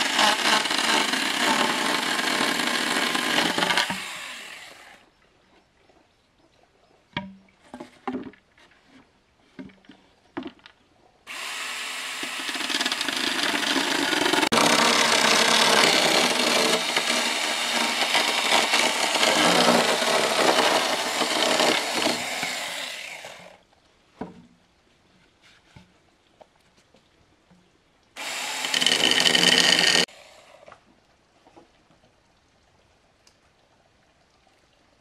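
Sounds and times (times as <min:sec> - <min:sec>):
power tool cutting wood: 0:00.0 - 0:05.0, 0:11.3 - 0:23.5, 0:28.2 - 0:30.6.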